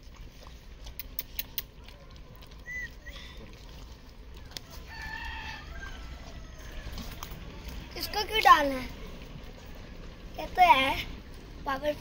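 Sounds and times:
dog licking metal bowl: 0.0 - 5.0.

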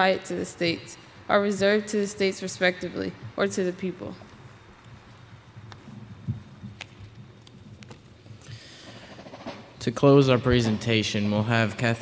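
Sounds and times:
footsteps on a stage: 4.1 - 9.8.

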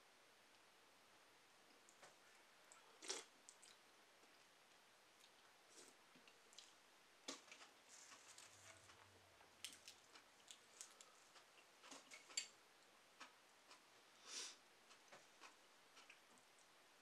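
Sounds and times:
person chewing: 2.7 - 4.4, 9.6 - 12.5.

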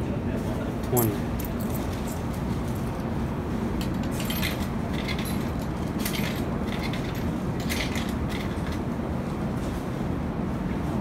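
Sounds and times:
coins clinking into vending machine: 4.0 - 8.8.

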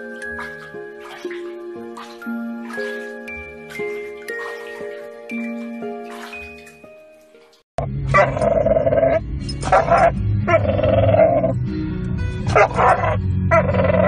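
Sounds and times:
music chime: 0.0 - 7.1
dog barking: 8.1 - 8.5, 9.6 - 10.2, 12.5 - 14.0.

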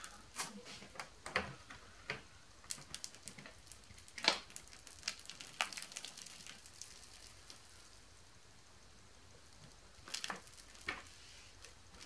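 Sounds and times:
slime sticky pops and crackles: 2.6 - 7.7, 9.7 - 12.0.

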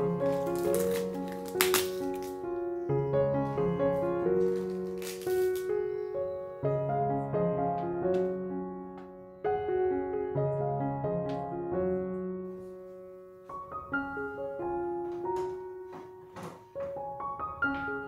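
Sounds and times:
solo piano melody: 0.0 - 18.0.

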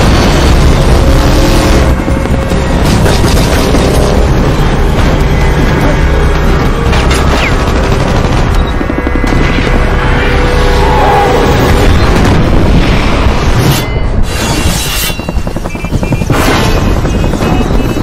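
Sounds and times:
rapid gunfire: 0.0 - 4.4, 6.4 - 9.8, 15.2 - 18.0
dramatic music: 0.0 - 18.0
booming blasts: 11.4 - 14.2.

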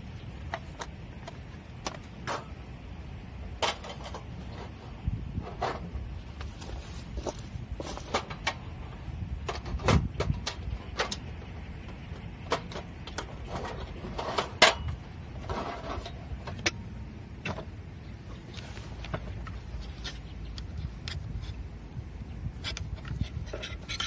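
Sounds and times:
rustling: 4.0 - 8.4, 18.2 - 21.6.

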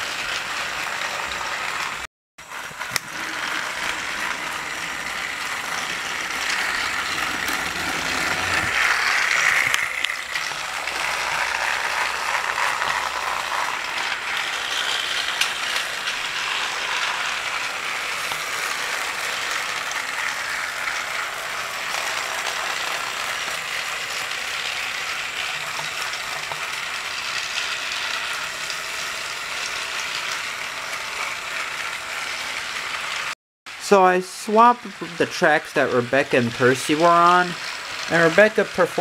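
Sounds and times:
toy train motor whirring rattle: 0.0 - 39.0.

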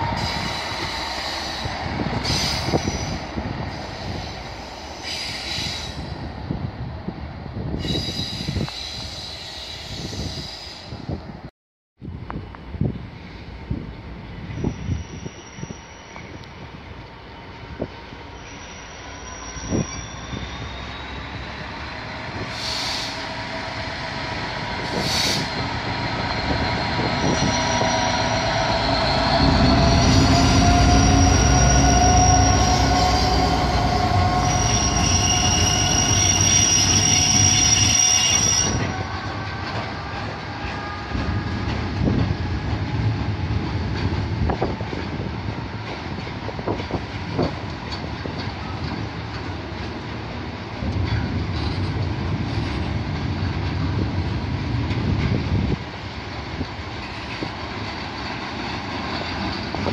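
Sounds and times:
diesel locomotive engine rumble: 0.0 - 59.9
high wheel squeal: 14.5 - 16.5, 18.2 - 21.8, 24.9 - 39.0.

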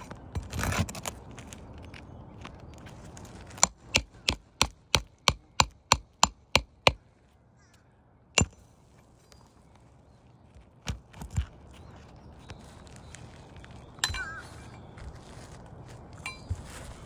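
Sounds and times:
hammer strikes: 3.6 - 7.0, 8.4 - 8.6.

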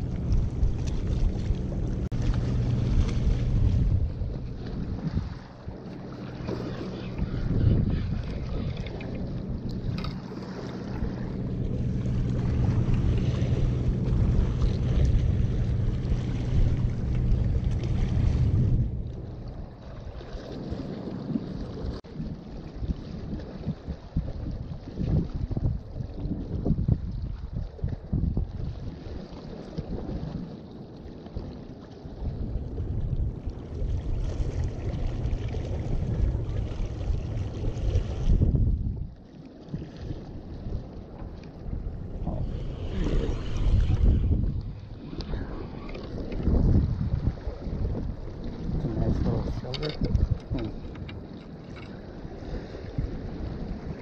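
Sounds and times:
surf washing against rocks: 0.0 - 24.3, 32.2 - 38.8, 39.7 - 54.0
wind rumbling on microphone: 0.0 - 54.0.

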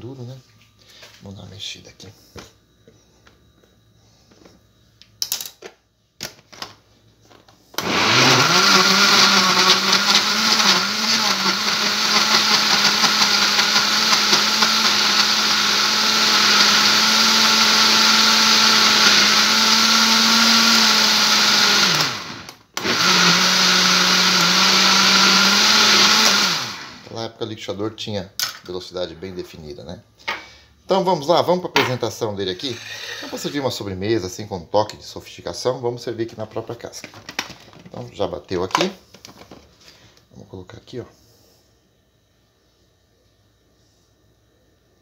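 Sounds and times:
blender motor humming: 7.8 - 27.1, 32.6 - 33.6.

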